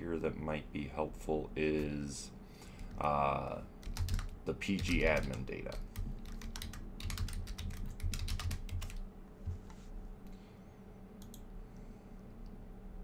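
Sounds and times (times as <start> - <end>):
computer keyboard typing: 3.8 - 9.0.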